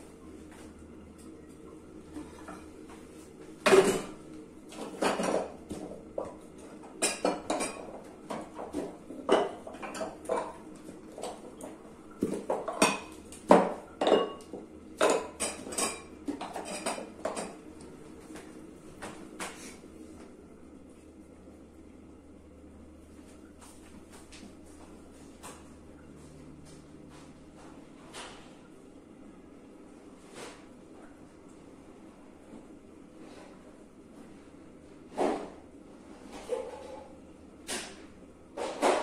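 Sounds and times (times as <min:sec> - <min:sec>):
faint steady hum: 0:00.0 - 0:39.0
utensils clinking against dishes: 0:07.0 - 0:08.5, 0:12.6 - 0:17.6.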